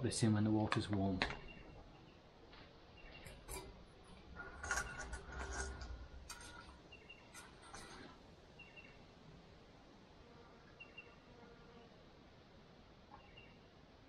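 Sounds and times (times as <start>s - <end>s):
bird chirping faintly: 1.0s - 9.2s, 10.4s - 12.0s, 13.0s - 13.8s
metal cooking gear clinking: 3.3s - 8.1s.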